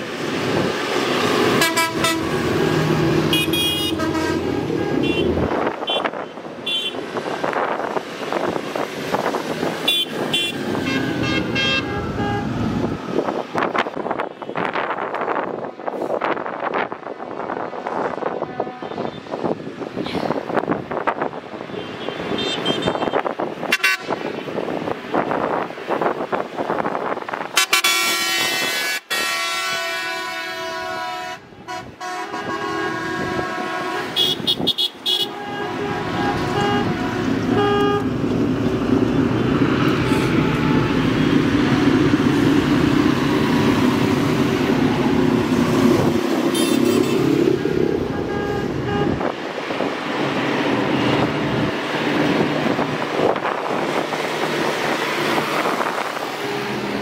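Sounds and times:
vehicle engine passing: 0.3 - 5.8
vehicle horns sounding: 1.5 - 7.0, 9.8 - 12.7, 18.4 - 19.4, 21.7 - 24.2, 27.6 - 38.2, 46.5 - 47.4, 48.0 - 49.4.

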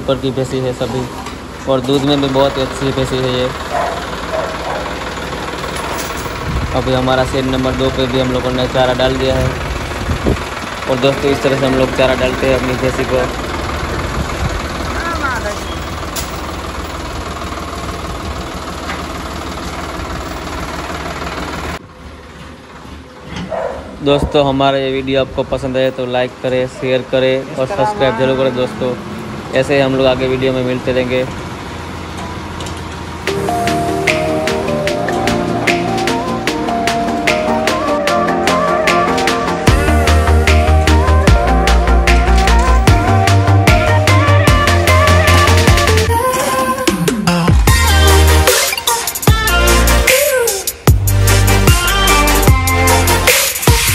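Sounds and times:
tractor diesel engine idling: 0.0 - 53.9
electronic music with pulsing bass: 33.3 - 53.9.

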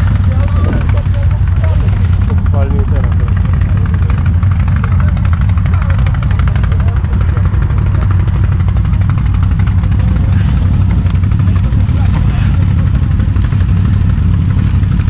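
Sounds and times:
atv engines running steadily: 0.0 - 15.0.

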